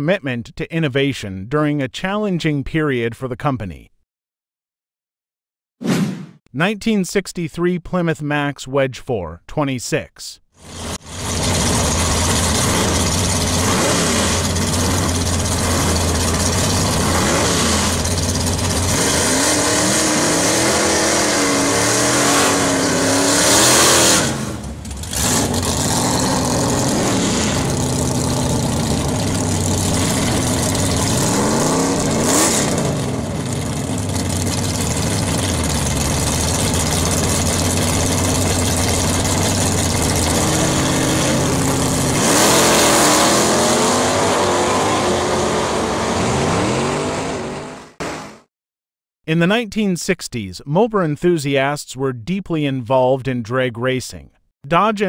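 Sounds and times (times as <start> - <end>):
drag car engines idling and revving: 10.6 - 48.4.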